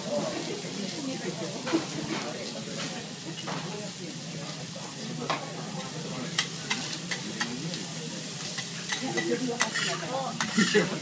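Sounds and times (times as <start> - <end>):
vegetables sizzling on a griddle: 0.0 - 11.0
metal spatulas clicking on a plate: 6.4 - 7.5, 8.5 - 10.9.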